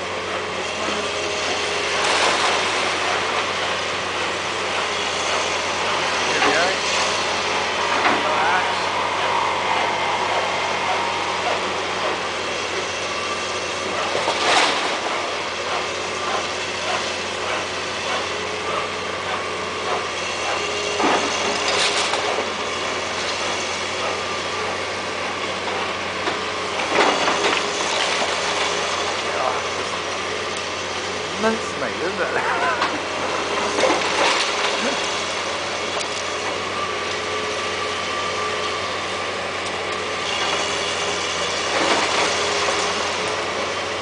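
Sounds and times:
excavator diesel engine running: 0.0 - 44.0
falling brick and rubble crashes: 33.6 - 35.4.

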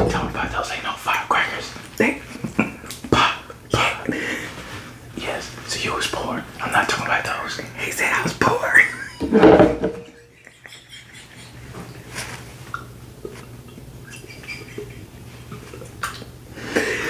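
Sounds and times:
person laughing: 14.0 - 15.1.

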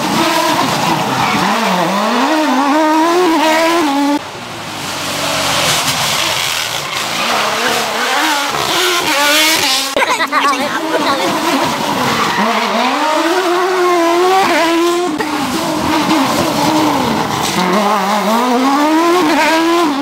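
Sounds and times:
car approaching: 0.0 - 20.0
car engines revving hard: 0.0 - 20.0.

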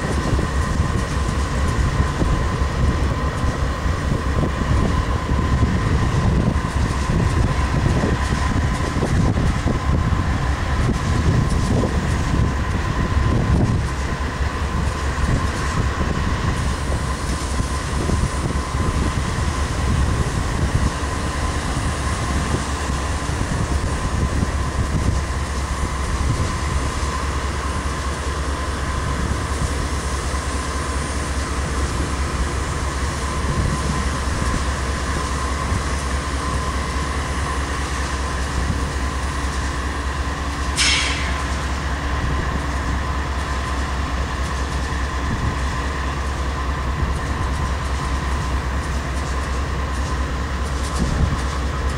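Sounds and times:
diesel locomotive engine rumbling: 0.0 - 51.9.

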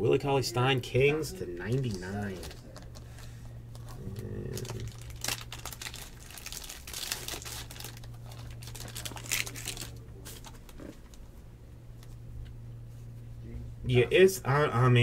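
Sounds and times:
plastic wrapper crinkling: 1.7 - 11.3.

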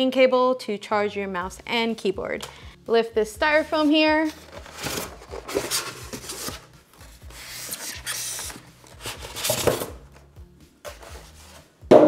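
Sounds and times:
styrofoam scraping against cardboard: 4.3 - 6.7, 7.3 - 9.9.

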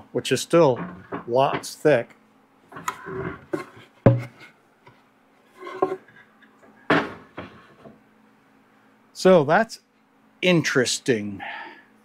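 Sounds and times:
faint steady hum: 0.0 - 12.0
wood scraping and knocking: 0.7 - 1.7, 2.7 - 6.3, 6.9 - 8.0
wooden board thudding: 3.5 - 4.5.

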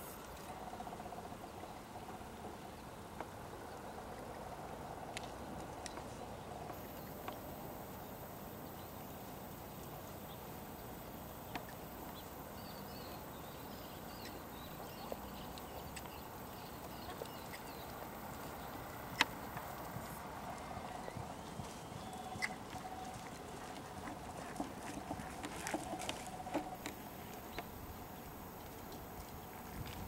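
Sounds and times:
horse hoofbeats on sand: 16.8 - 27.0.

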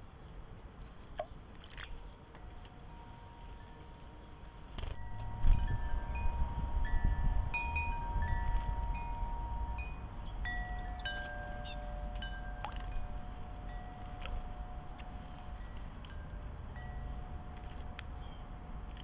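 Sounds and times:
wind rumbling on microphone: 4.7 - 19.0
wind chime ringing: 5.0 - 17.5.

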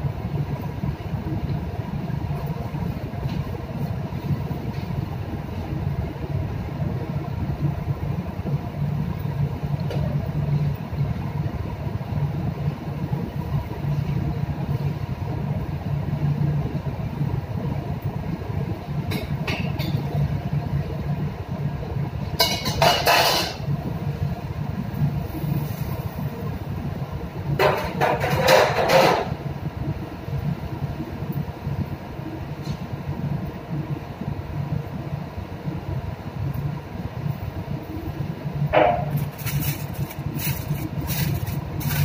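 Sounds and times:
low drone of ship machinery: 0.0 - 42.0
clatter at a stove: 19.1 - 20.1, 22.4 - 23.6, 27.5 - 29.4.

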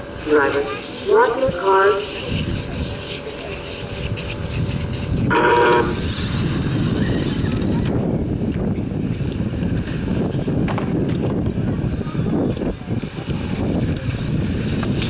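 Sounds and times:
electric rc cars whining: 0.0 - 15.0
electronic start tone: 5.3 - 6.1.

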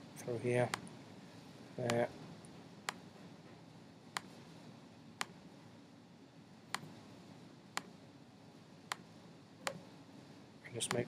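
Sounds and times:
faint room hiss: 0.0 - 11.0
computer mouse clicks: 8.9 - 9.8.

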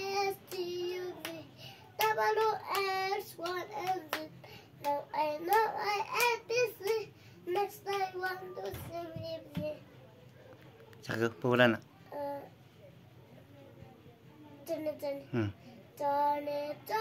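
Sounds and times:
boy singing: 0.0 - 9.8, 14.6 - 17.0
hand claps: 0.5 - 8.8.

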